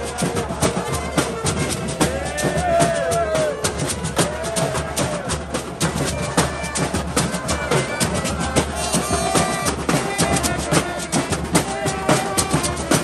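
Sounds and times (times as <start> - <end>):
samba drumming and percussion: 0.0 - 13.0
melody over drums: 6.0 - 13.0.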